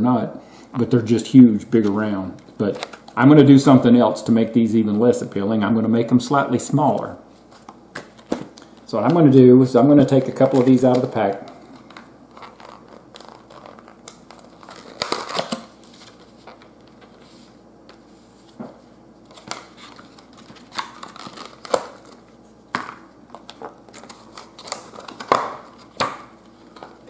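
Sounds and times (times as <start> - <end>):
plastic bag crinkling: 10.0 - 17.1, 19.3 - 22.3.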